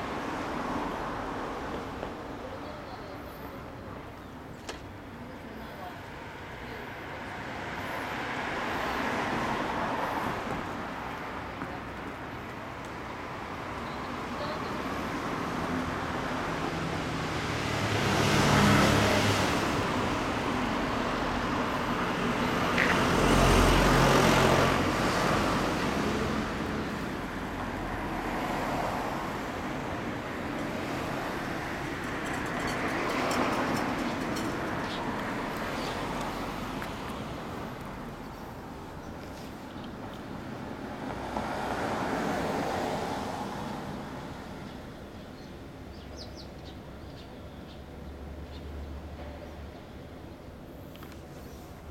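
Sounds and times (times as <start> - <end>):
motor vehicle noise: 13.9 - 46.0.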